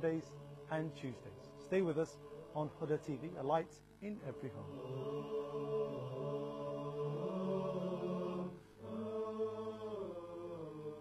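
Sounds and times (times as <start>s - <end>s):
a cappella voices singing: 0.0s - 11.0s.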